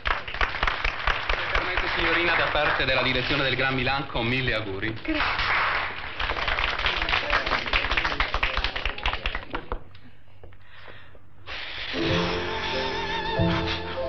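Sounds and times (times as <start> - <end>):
people applauding: 0.0 - 3.9, 5.0 - 10.0
band playing: 12.0 - 14.0.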